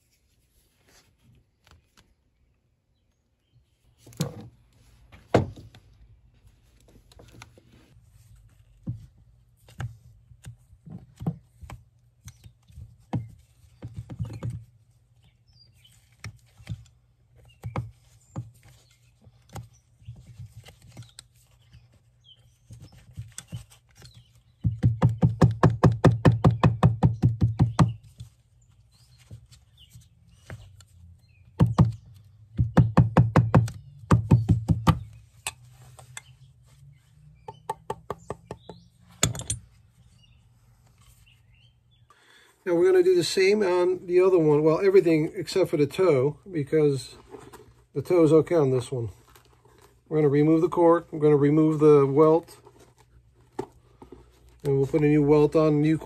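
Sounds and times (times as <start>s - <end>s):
hammer tapping on wooden last: 24.6s - 28.0s, 32.6s - 35.1s, 37.4s - 39.6s.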